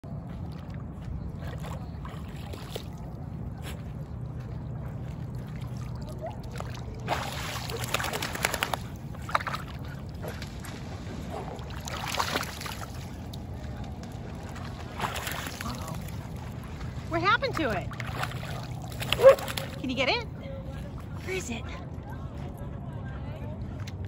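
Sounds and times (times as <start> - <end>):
dogs sloshing in shallow water: 0.0 - 22.6
steady low rumble: 0.0 - 24.0
splashing: 0.2 - 3.7, 4.6 - 20.1.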